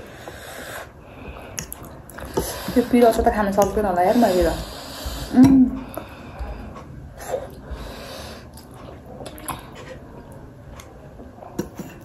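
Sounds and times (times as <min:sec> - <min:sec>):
breaths: 0:00.0 - 0:03.0, 0:04.0 - 0:08.5
person chewing: 0:01.2 - 0:02.6.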